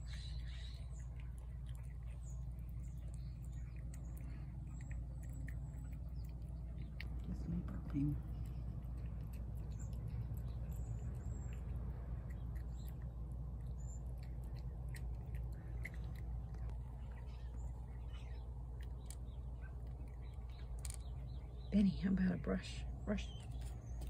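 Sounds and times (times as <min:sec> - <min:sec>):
cat crunching kibble: 0:00.0 - 0:21.8.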